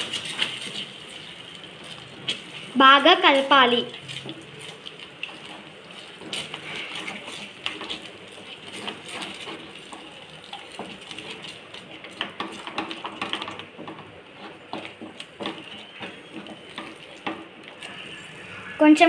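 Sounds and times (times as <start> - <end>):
spatula scraping a metal pan: 5.2 - 12.9.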